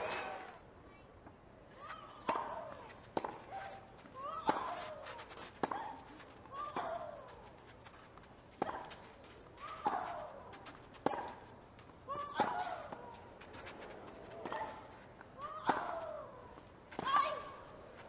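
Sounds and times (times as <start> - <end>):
racket hitting tennis ball: 4.3 - 6.0, 12.2 - 14.9, 15.5 - 16.4.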